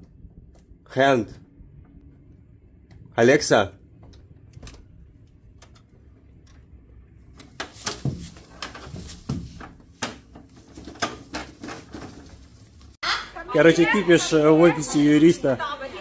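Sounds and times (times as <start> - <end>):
wing flaps rustling: 7.6 - 13.0.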